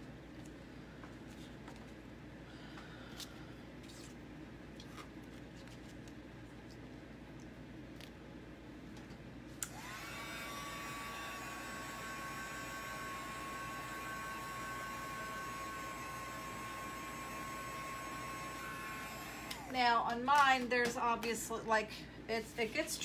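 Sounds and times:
heat tool motor whine: 9.6 - 19.8.

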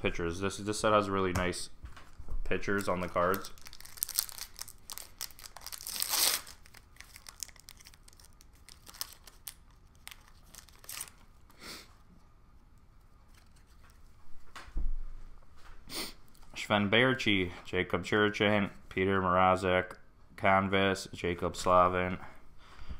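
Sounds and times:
foil wrapper crinkling and tearing: 2.6 - 11.3.

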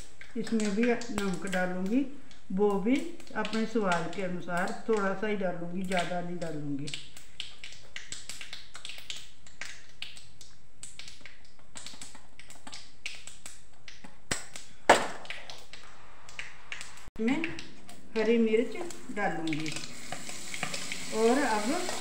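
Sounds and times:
spices crackling in hot oil: 0.0 - 22.0.

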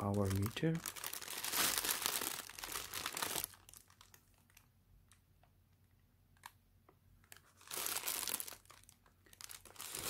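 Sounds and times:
plastic bag crinkling: 0.0 - 4.7, 7.2 - 10.0.

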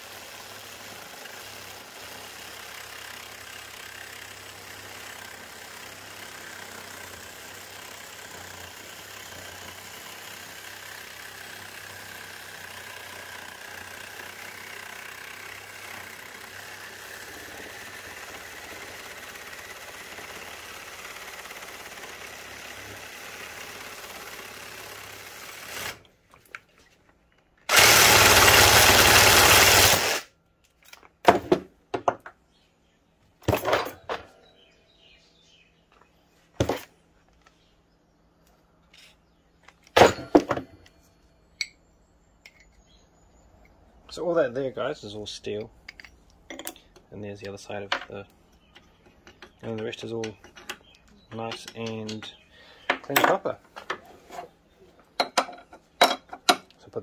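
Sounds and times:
reciprocating saw cutting metal: 0.0 - 26.1, 27.7 - 30.3.

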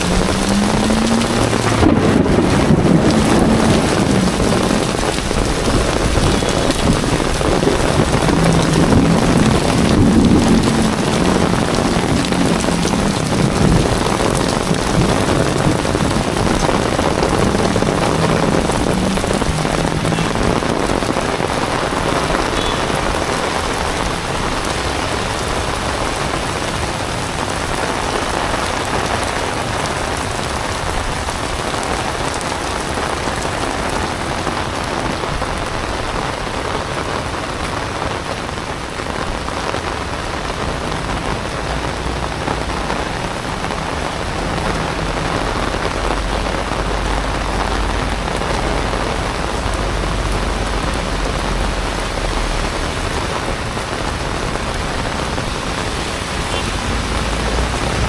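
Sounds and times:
low rumble: 0.0 - 21.4
heavy rain on pavement: 0.0 - 58.0.

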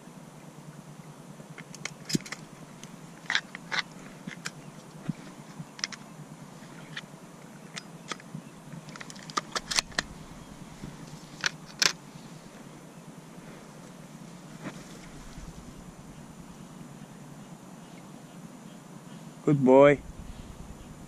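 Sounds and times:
shotgun clicks: 8.9 - 10.4
dry reeds crackling and rustling: 8.9 - 12.8, 13.4 - 16.6.

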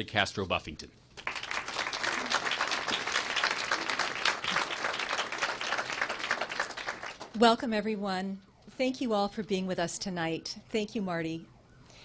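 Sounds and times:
audience applauding: 1.2 - 7.4.

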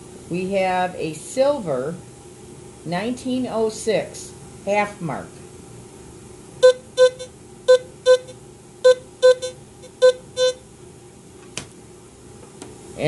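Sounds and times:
metal detector short beeps: 6.6 - 10.6.

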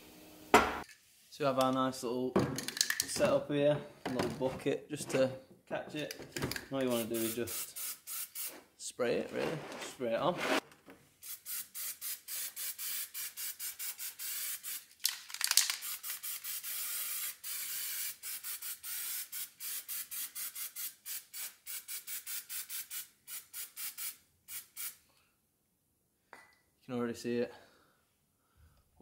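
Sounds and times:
aerosol can spraying in hissing bursts: 6.9 - 8.6, 11.2 - 14.9, 15.8 - 25.0.

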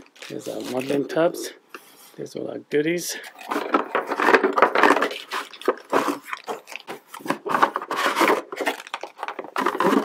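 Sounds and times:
plastic wrapping crinkling: 0.0 - 1.2, 3.3 - 10.0
cardboard box scraping: 3.4 - 8.8, 9.5 - 10.0.

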